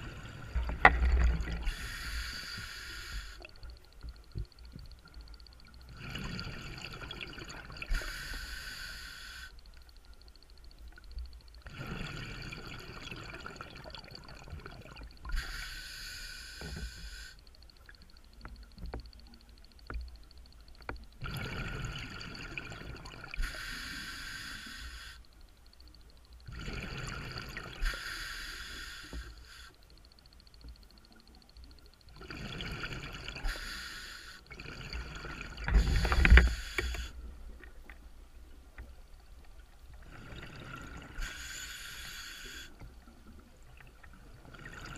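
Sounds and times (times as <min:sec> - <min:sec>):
diver breathing through regulator: 0:00.0 - 0:03.5, 0:07.9 - 0:09.6, 0:15.3 - 0:17.4, 0:23.4 - 0:25.2, 0:26.6 - 0:29.8, 0:32.3 - 0:37.3, 0:40.1 - 0:42.8.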